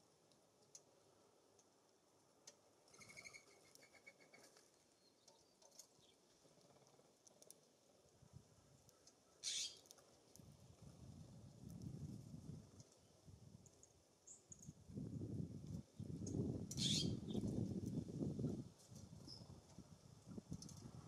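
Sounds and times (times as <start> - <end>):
songbirds chip notes: 8.8 - 10.0, 13.6 - 14.8, 15.9 - 17.6.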